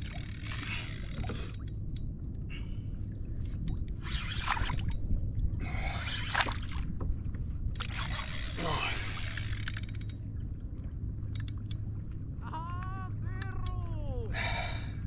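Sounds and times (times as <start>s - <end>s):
water sloshing around kayak: 0.0s - 12.4s
wind rumbling on microphone: 0.0s - 15.0s
short clicks: 13.3s - 13.9s.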